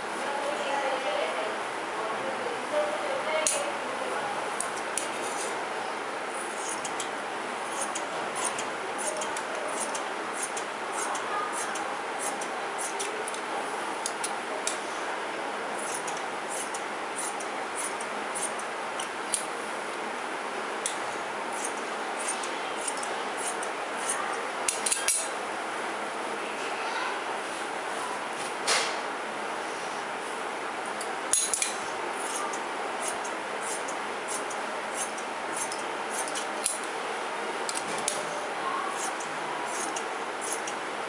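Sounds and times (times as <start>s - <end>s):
scissors snipping fabric: 6.5s - 7.1s, 7.7s - 13.4s, 15.8s - 19.5s, 21.6s - 25.3s, 31.3s - 36.9s, 39.0s - 40.8s.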